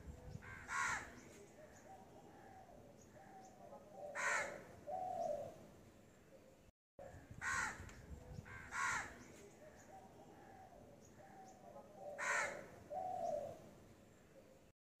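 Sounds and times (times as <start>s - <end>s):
crow cawing: 0.4s - 1.1s, 4.1s - 4.7s, 7.4s - 7.8s, 8.5s - 9.2s, 12.1s - 12.7s.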